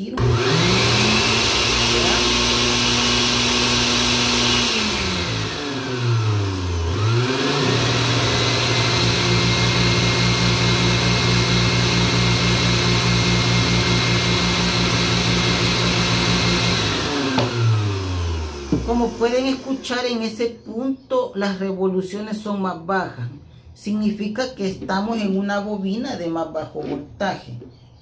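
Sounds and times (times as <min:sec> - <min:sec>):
blender motor running: 0:00.1 - 0:20.2.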